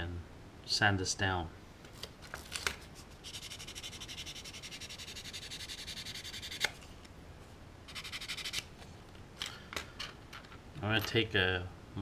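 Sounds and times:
sandpaper rubbing on plastic: 0:03.1 - 0:06.7, 0:07.9 - 0:08.6.

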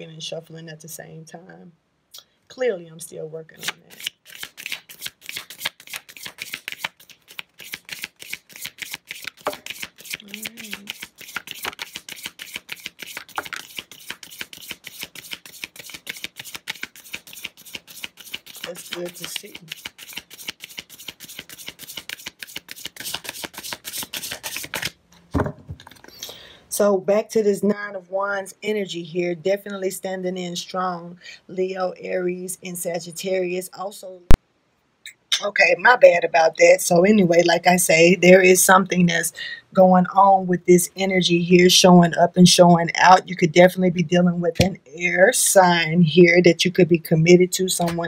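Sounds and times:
cards being shuffled: 0:03.6 - 0:26.3, 0:47.8 - 0:48.0.

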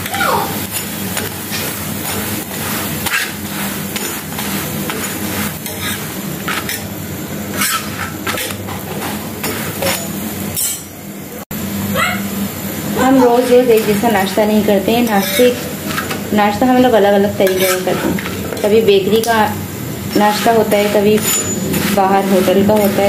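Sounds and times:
frying hiss: 0:00.0 - 0:10.6, 0:12.5 - 0:23.0
metal spatula scraping a griddle: 0:00.6 - 0:06.9, 0:07.5 - 0:10.8, 0:13.2 - 0:16.2, 0:17.3 - 0:19.3, 0:20.1 - 0:23.0.

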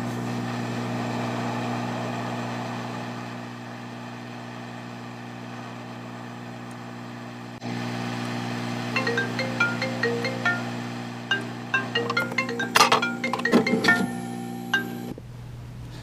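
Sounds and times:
fan hum: 0:05.6 - 0:16.0.

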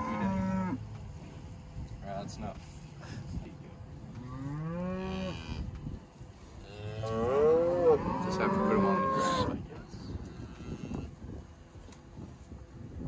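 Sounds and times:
cows mooing: 0:00.0 - 0:00.8, 0:04.2 - 0:05.7, 0:06.6 - 0:09.6.

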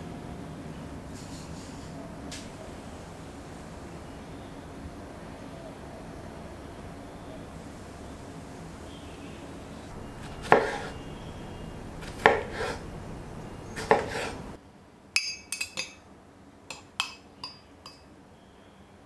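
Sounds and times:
knife chopping on wooden board: 0:10.2 - 0:11.0, 0:12.0 - 0:12.8, 0:13.7 - 0:14.4
clinks against glass jug: 0:15.2 - 0:16.0, 0:16.7 - 0:18.0.

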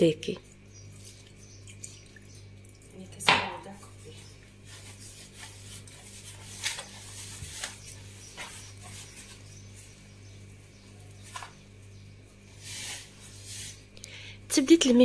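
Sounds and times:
steady low hum: 0:00.0 - 0:15.0
hands rubbing damp dough: 0:00.5 - 0:02.2, 0:03.7 - 0:14.0.

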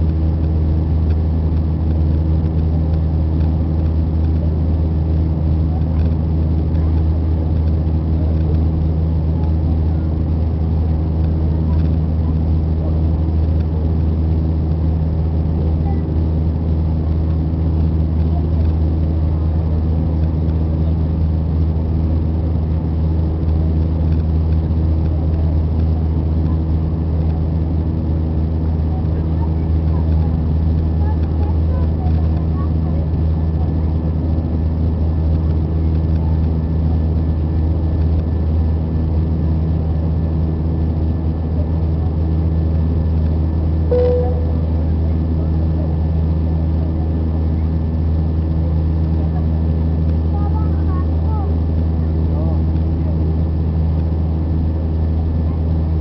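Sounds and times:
low even hum: 0:39.4 - 0:49.4
jet engine cabin drone: 0:40.2 - 0:48.9.

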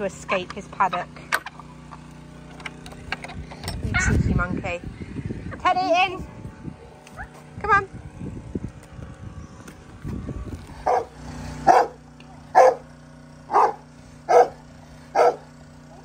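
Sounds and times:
dog barking: 0:10.8 - 0:11.1, 0:11.7 - 0:12.8, 0:13.5 - 0:15.5.

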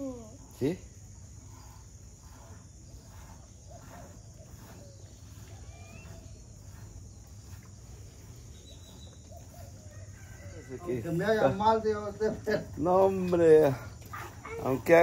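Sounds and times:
high-pitched insect drone: 0:00.0 - 0:08.0
rising bird chirp: 0:00.9 - 0:10.8.

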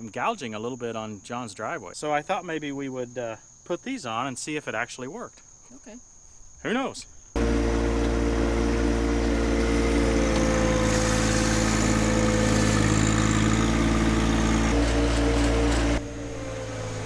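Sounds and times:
soil scraping and sliding: 0:07.4 - 0:16.0
tractor diesel engine running: 0:07.4 - 0:17.0.

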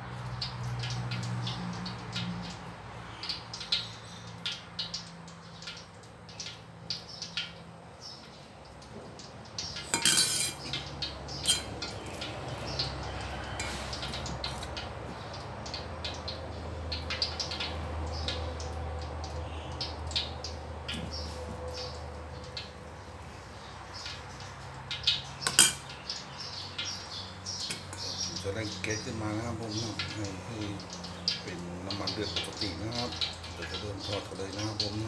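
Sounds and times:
spoon clinking in a metal bowl: 0:09.8 - 0:10.8, 0:11.4 - 0:12.2, 0:25.4 - 0:25.9.

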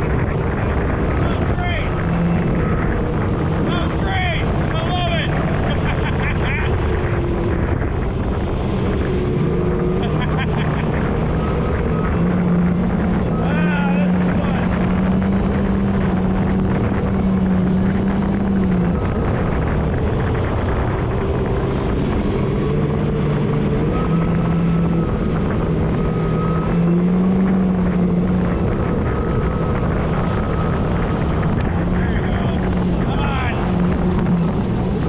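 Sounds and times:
spray and wind rushing: 0:00.0 - 0:13.4, 0:27.4 - 0:35.0
high supercharger whine: 0:00.0 - 0:35.0
watercraft engine running hard: 0:00.0 - 0:35.0.

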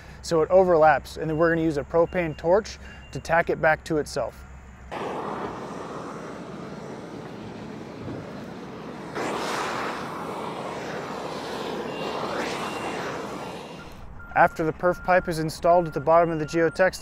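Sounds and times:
propane torch flame rushing: 0:04.9 - 0:14.2.

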